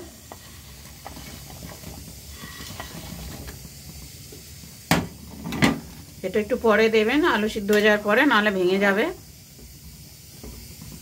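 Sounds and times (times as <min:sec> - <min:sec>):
curry bubbling and popping: 0:00.0 - 0:06.3.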